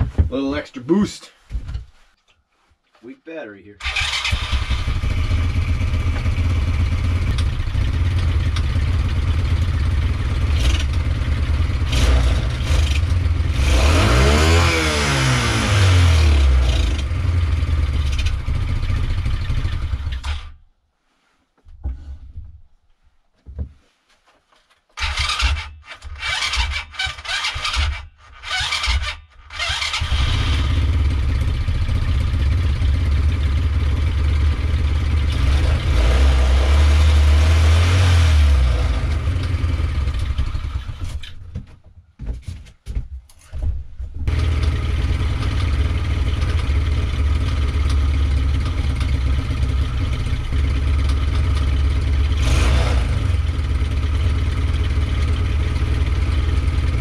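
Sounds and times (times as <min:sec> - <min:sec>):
electric starter cranking: 0:03.8 - 0:05.5, 0:25.0 - 0:30.9
small engine running and revving: 0:04.0 - 0:20.4, 0:25.0 - 0:40.9, 0:44.3 - 0:57.0.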